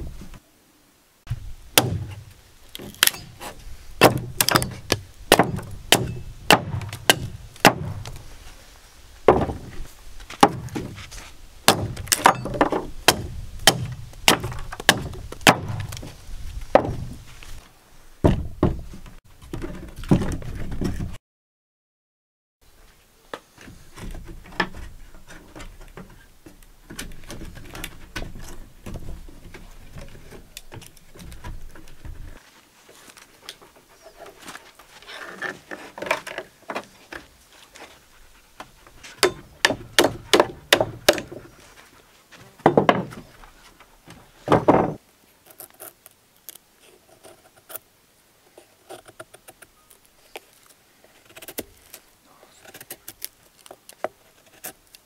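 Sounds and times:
wooden logs knocking on boards: 0:01.3 - 0:08.2, 0:09.2 - 0:17.2, 0:18.2 - 0:21.2, 0:23.6 - 0:32.3, 0:38.6 - 0:41.5, 0:42.4 - 0:43.3, 0:44.0 - 0:45.0.

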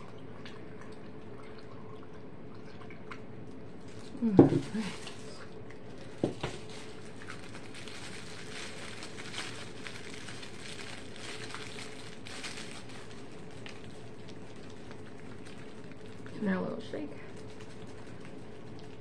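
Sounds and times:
plastic bottle handling crackles: 0:03.8 - 0:16.4.

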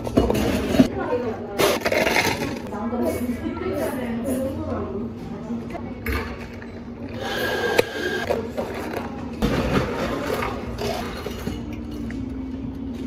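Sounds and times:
low hum of cafe equipment: 0:00.0 - 0:13.0.

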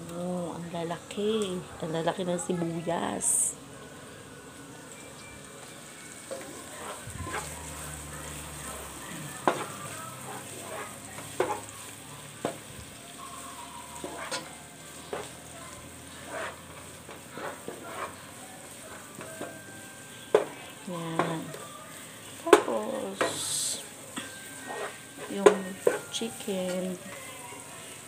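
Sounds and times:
onions sizzling in oil: 0:00.0 - 0:28.0
wooden spoon scraping pot: 0:06.3 - 0:08.0, 0:08.6 - 0:11.7, 0:14.0 - 0:15.4, 0:16.1 - 0:19.1, 0:24.6 - 0:26.2.

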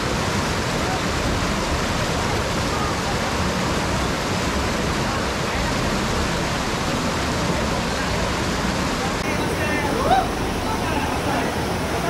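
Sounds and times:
river rushing over boulders: 0:00.0 - 0:12.0.

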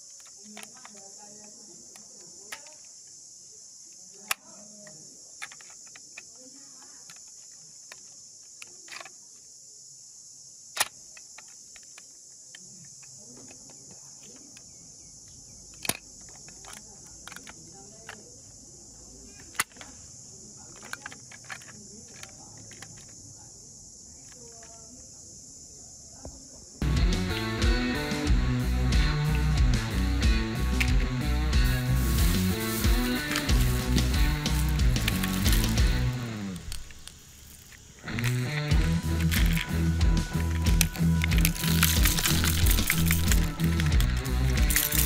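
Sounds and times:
crickets chirping: 0:00.0 - 0:45.0
sharp clicks and knocks: 0:30.7 - 0:45.0.

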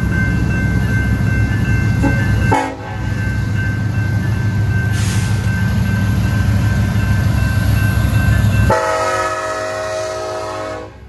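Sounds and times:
diesel locomotives rumbling past: 0:00.0 - 0:11.0
locomotive air horn chord: 0:02.0 - 0:03.0, 0:08.7 - 0:11.0.

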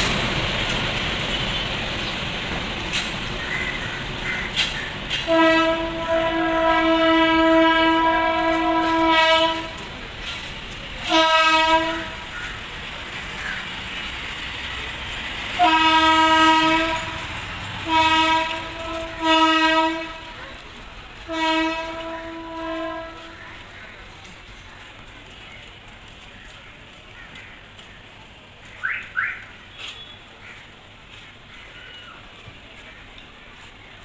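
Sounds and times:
locomotive horn blasts: 0:05.1 - 0:09.8, 0:11.0 - 0:12.3, 0:15.6 - 0:20.4, 0:21.2 - 0:23.4.

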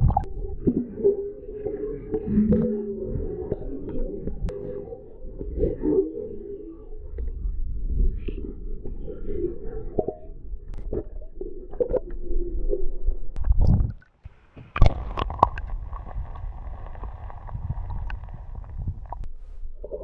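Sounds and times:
muffled underwater river rumble: 0:00.0 - 0:20.0
water hiss: 0:14.3 - 0:19.3
clicks and knocks on camera: 0:14.6 - 0:19.3.

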